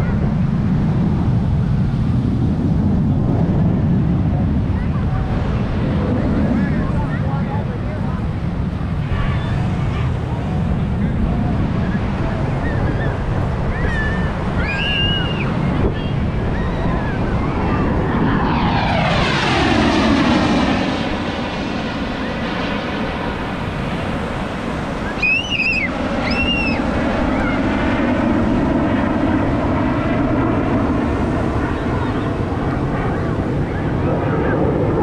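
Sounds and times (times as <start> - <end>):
aircraft flying past low: 0.0 - 35.0
short high calls: 25.1 - 26.8.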